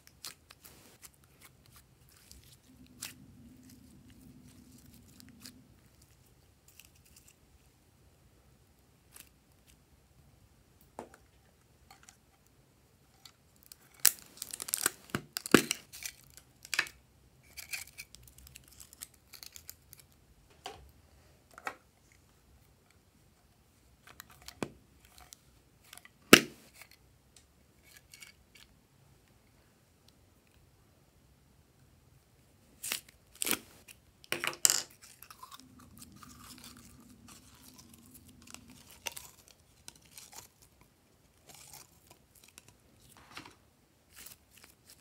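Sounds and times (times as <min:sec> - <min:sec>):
plastic pieces crinkling and crackling: 0:13.6 - 0:20.1, 0:32.8 - 0:43.2.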